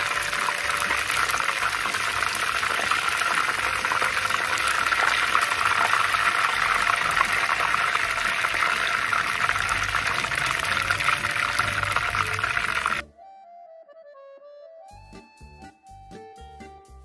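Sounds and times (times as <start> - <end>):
shrimp deep-frying sizzle: 0.0 - 13.0.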